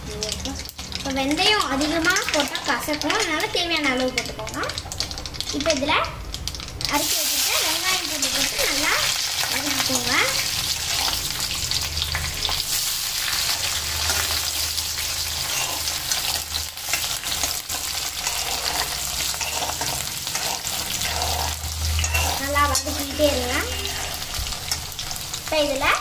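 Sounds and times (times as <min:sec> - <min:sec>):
shallots sizzling in oil: 0:00.0 - 0:26.0
ladle scraping and tapping pan: 0:17.0 - 0:24.8.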